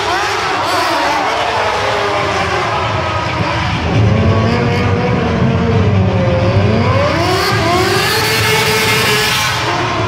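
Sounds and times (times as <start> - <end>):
motorcycle engine revving: 0.0 - 10.0
deep engine rumble: 1.9 - 8.6.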